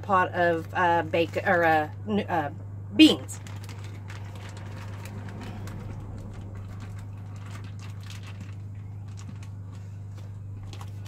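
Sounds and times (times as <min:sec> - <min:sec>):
low hum: 0:00.0 - 0:11.0
plastic bag rustling: 0:03.1 - 0:11.0.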